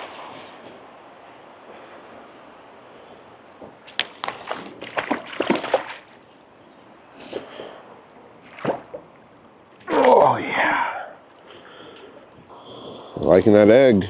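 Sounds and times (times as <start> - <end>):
stream flowing: 0.0 - 12.4
fish splashing and thrashing in water: 3.7 - 6.2, 8.4 - 9.2.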